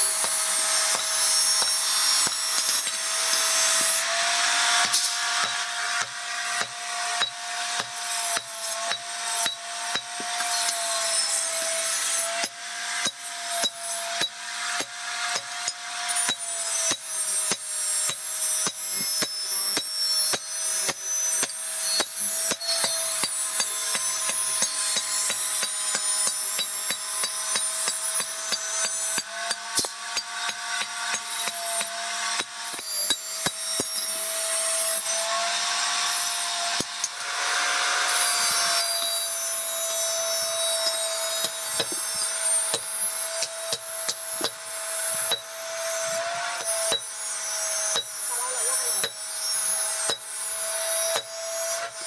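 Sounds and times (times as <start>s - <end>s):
hammer striking iron on anvil: 0.1s - 4.0s, 4.8s - 11.2s, 11.9s - 34.2s, 40.2s - 45.6s, 46.6s - 47.2s, 47.9s - 48.2s, 49.0s - 49.2s, 50.0s - 50.3s, 51.1s - 51.4s.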